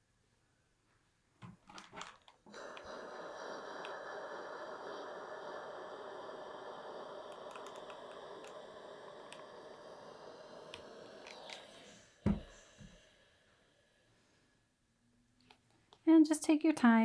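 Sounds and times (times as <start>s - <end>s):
steam iron hissing: 2.0s - 13.6s.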